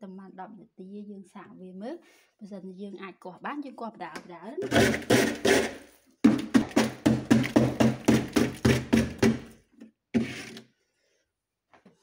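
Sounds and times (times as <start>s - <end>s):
hand tool chipping ice: 4.6s - 9.6s, 10.2s - 10.6s.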